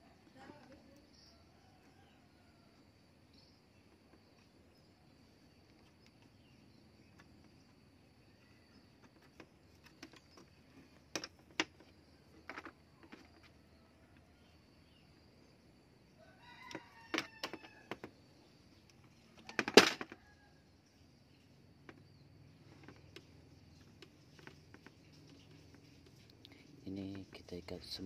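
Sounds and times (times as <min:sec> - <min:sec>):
light clicks and knocks of handling wood: 0:03.8 - 0:14.5, 0:21.8 - 0:26.8.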